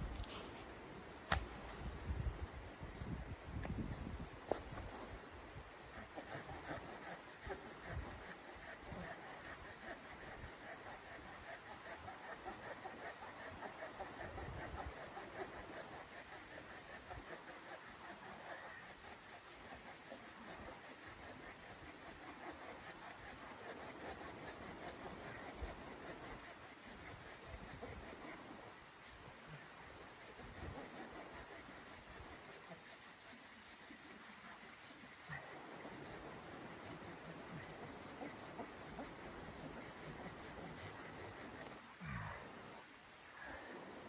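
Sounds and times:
hand saw cutting wood: 5.7s - 28.5s, 30.0s - 41.8s.

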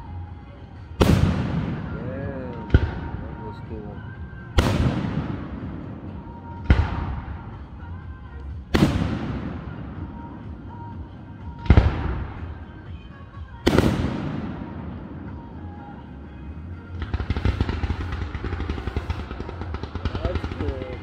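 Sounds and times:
firework shells booming: 1.0s - 3.2s, 4.6s - 7.4s, 13.6s - 15.1s, 17.0s - 21.0s.

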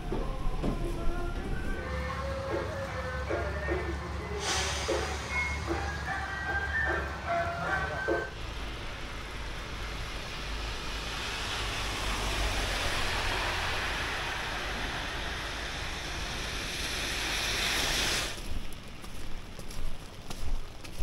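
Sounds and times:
low rumble: 0.0s - 3.0s
hiss: 3.3s - 6.0s, 9.4s - 18.8s.

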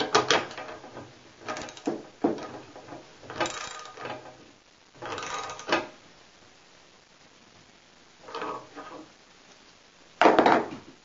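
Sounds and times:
ratchet wrench clicking: 3.4s - 4.0s, 5.1s - 5.7s.

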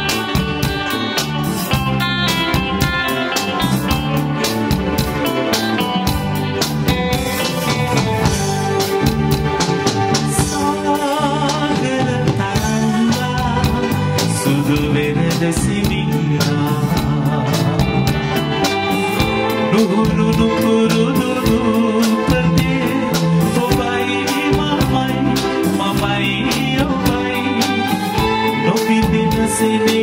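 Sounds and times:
live pop band playing: 0.0s - 30.0s
man singing into a microphone: 10.3s - 18.5s, 19.1s - 30.0s.

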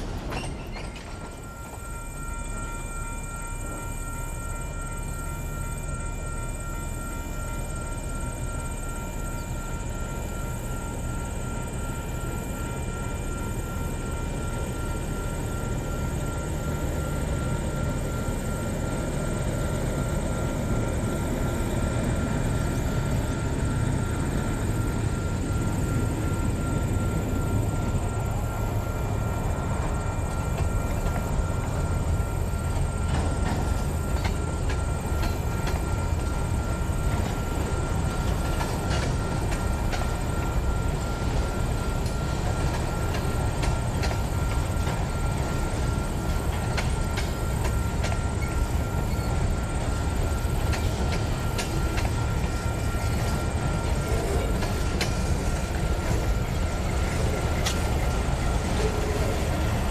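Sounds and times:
wheels clicking on rails: 0.0s - 1.8s, 21.3s - 59.9s
diesel locomotive engine rumble: 0.0s - 59.9s.

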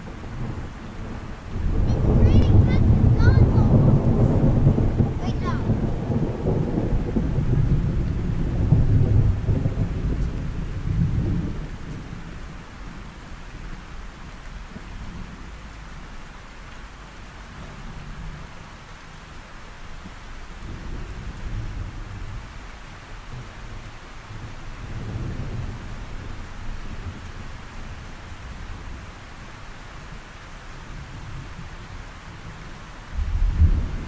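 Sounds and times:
thunder rumbling: 0.0s - 15.9s, 23.3s - 29.2s, 32.3s - 34.0s
steady rain: 0.0s - 34.0s.

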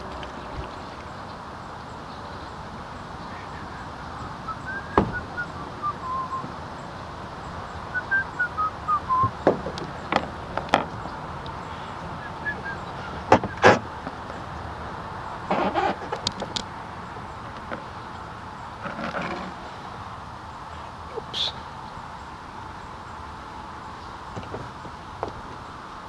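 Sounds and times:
bird calling: 0.0s - 14.0s, 20.6s - 23.3s
hiss of water and wind: 0.0s - 26.0s.

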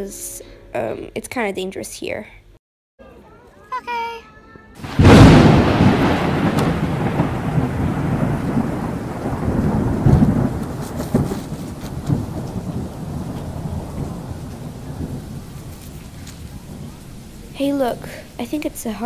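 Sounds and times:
steady rain: 4.8s - 19.0s
thunder rumbling: 4.8s - 19.0s.

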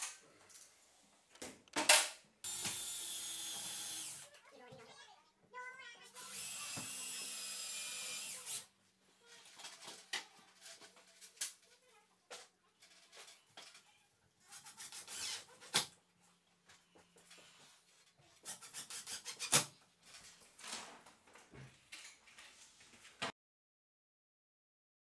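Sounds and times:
timber and drill handling noises: 1.3s - 4.3s, 9.3s - 16.0s.

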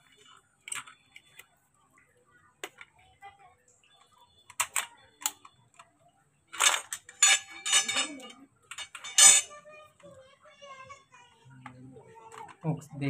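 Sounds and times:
parts clattering and rattling: 6.5s - 9.6s.

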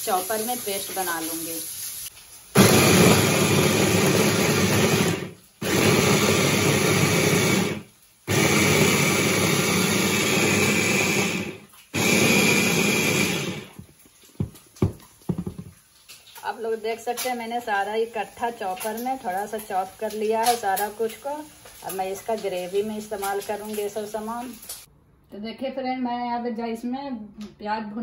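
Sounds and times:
electric food chopper running: 2.6s - 13.8s.

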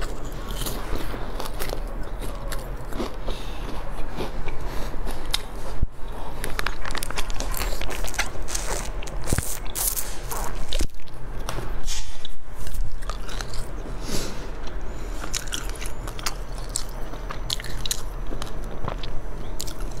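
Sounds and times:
sharp clicks and crunches: 0.0s - 13.8s, 14.6s - 20.0s
person biting and chewing: 0.0s - 20.0s.

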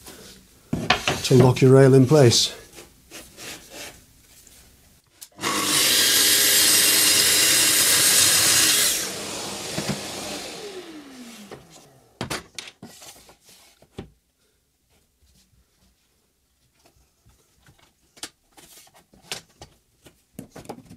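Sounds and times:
saw knocking: 5.4s - 11.8s
circular saw cutting wood: 5.4s - 12.1s
saw blade winding down: 5.4s - 12.1s.

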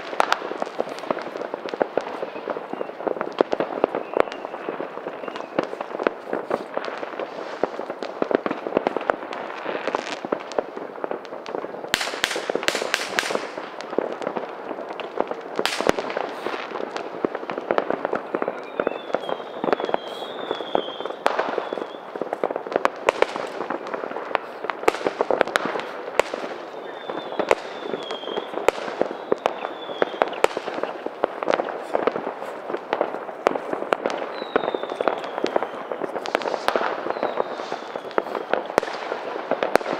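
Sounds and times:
firecrackers crackling: 0.0s - 39.9s
fireworks bangs: 0.0s - 39.9s
high falling whistles: 18.4s - 22.2s, 26.7s - 31.0s, 34.2s - 38.4s.

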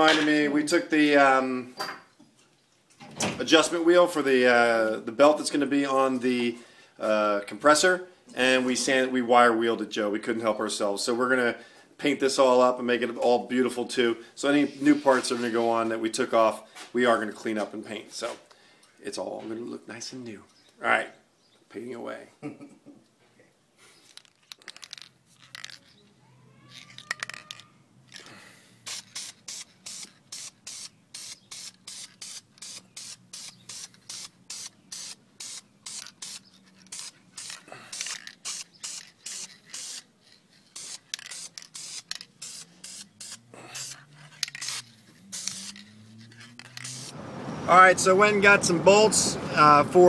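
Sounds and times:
spray paint can hissing: 28.8s - 47.2s.

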